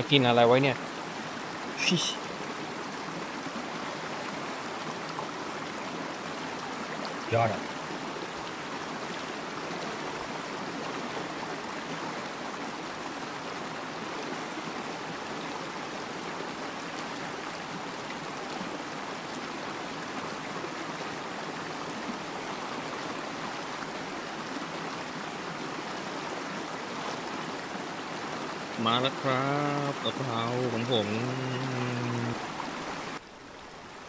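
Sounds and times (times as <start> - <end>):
waterfall stream rushing: 0.0 - 34.0.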